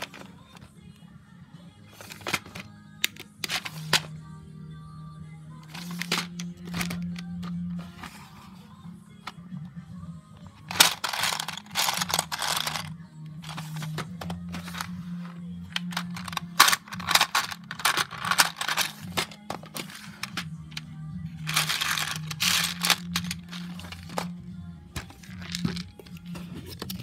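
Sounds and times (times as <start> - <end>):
plastic bricks clattering: 2.0 - 4.1, 5.7 - 8.4, 10.6 - 20.8, 21.4 - 24.4, 25.0 - 26.2.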